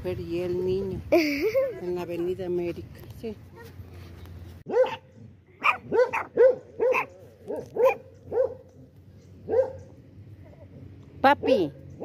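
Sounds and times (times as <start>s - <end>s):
dog barking: 4.7s - 8.7s, 9.5s - 9.9s.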